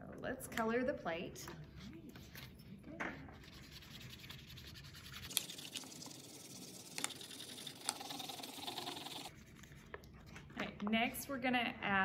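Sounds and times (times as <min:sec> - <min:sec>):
markers scribbling on paper plates: 0:03.3 - 0:10.3.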